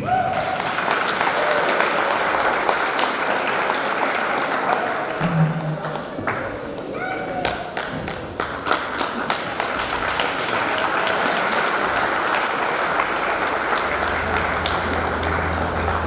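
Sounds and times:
crowd applauding: 0:00.0 - 0:16.0
steady low bass tone: 0:13.4 - 0:16.0.

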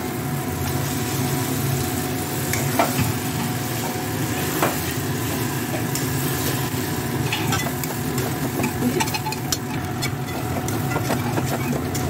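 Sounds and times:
meat sizzling in paste: 0:00.1 - 0:12.0
metal spatula scraping pan: 0:07.3 - 0:12.0.

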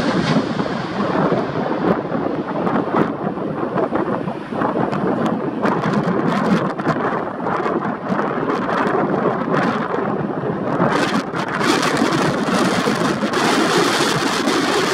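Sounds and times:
airliner jet roar: 0:00.0 - 0:14.9.

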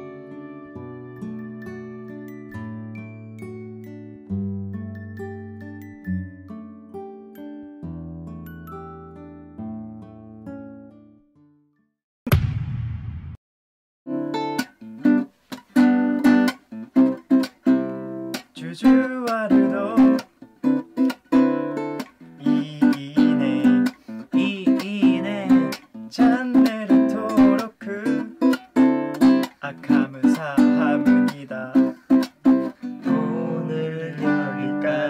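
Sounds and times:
strummed acoustic guitar: 0:14.2 - 0:35.0.

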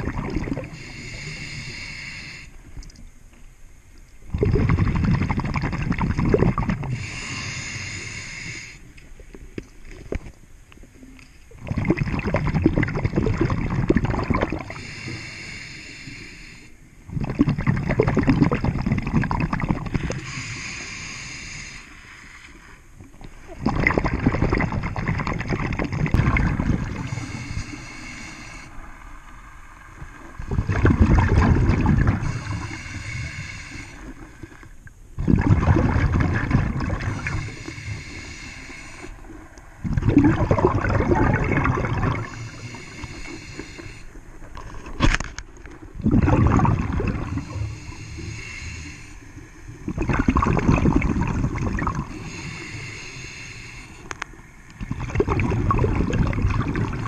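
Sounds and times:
gurgling rush of exhaled bubbles: 0:00.0 - 0:00.8, 0:04.3 - 0:07.4, 0:11.5 - 0:14.8, 0:17.1 - 0:20.4, 0:23.0 - 0:27.8, 0:29.9 - 0:32.9, 0:35.2 - 0:37.8, 0:39.7 - 0:43.1, 0:45.8 - 0:48.1, 0:49.7 - 0:52.5, 0:54.7 - 0:57.0
regulator inhalation hiss: 0:00.6 - 0:02.6, 0:06.9 - 0:08.9, 0:14.6 - 0:16.9, 0:20.0 - 0:22.8, 0:27.0 - 0:28.9, 0:32.2 - 0:34.5, 0:37.1 - 0:39.3, 0:42.2 - 0:44.3, 0:47.3 - 0:49.8, 0:52.1 - 0:54.6.

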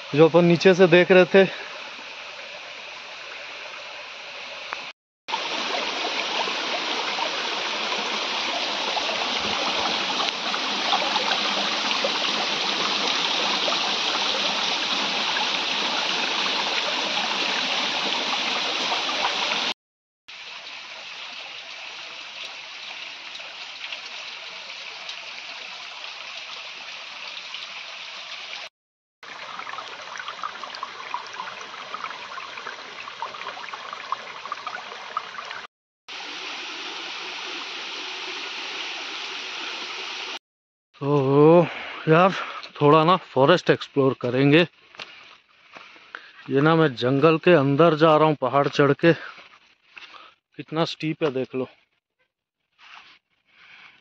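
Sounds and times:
waterfall rushing over rocks: 0:05.3 - 0:19.7.

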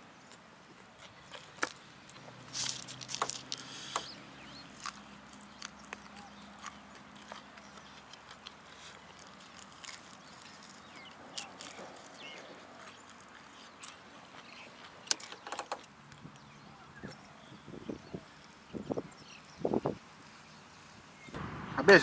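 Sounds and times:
chewing crispy fried chicken: 0:00.3 - 0:16.4.

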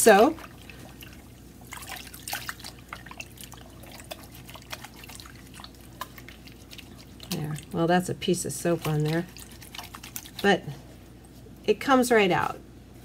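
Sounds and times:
water sloshing and splashing in bowl: 0:00.0 - 0:11.6
faint low hum: 0:00.0 - 0:13.0.

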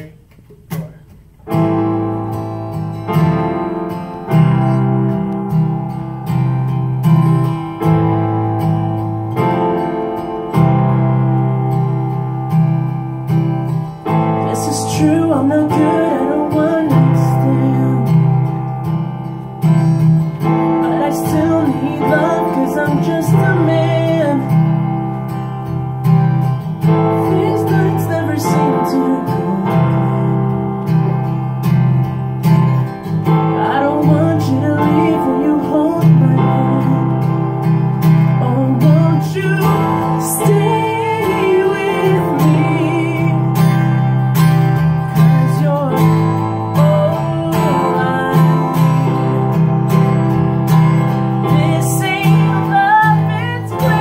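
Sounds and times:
acoustic guitar strumming: 0:00.0 - 0:54.0
piano chords: 0:01.3 - 0:54.0
man singing: 0:14.4 - 0:18.4, 0:20.5 - 0:24.6, 0:27.0 - 0:30.4, 0:33.5 - 0:37.4, 0:38.4 - 0:44.1, 0:45.2 - 0:49.6, 0:51.4 - 0:54.0.

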